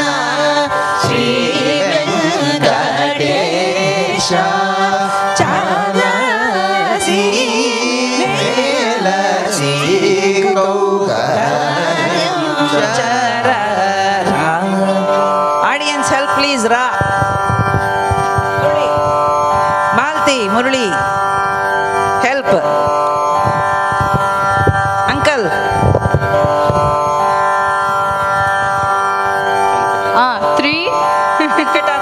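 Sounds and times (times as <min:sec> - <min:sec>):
people singing: 0:00.0 - 0:17.5
steady drone: 0:00.0 - 0:32.0
hand drum strokes: 0:16.8 - 0:20.1.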